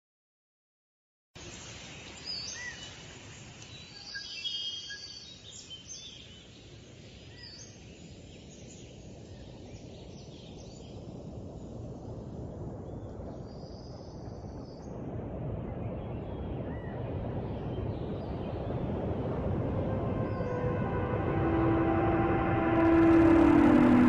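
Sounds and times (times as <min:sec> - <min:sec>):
steady low rumbling noise: 0:14.5 - 0:24.0.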